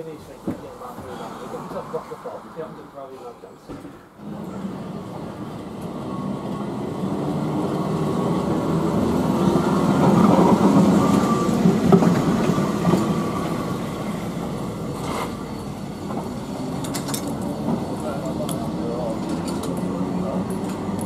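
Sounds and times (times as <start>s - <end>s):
tram rumbling on rails: 0.0s - 21.0s.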